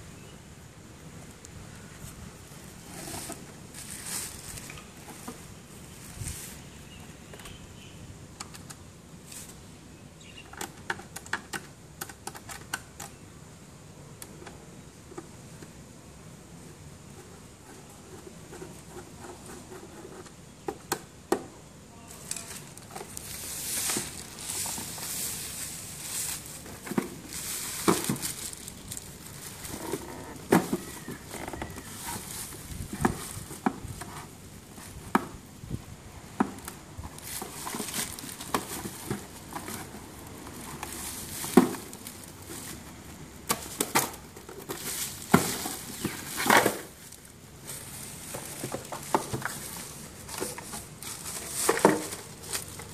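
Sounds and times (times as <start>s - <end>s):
plastic wrapping crinkling: 22.2s - 33.6s, 37.1s - 42.9s, 43.6s - 52.9s.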